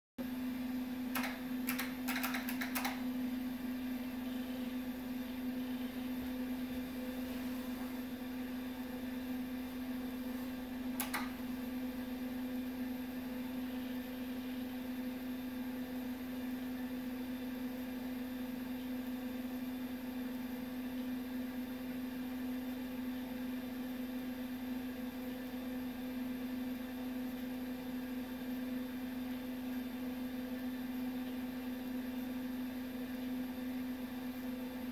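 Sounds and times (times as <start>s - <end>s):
computer hum: 0.2s - 18.2s
sharp clicks: 1.1s - 3.0s, 11.0s - 11.4s.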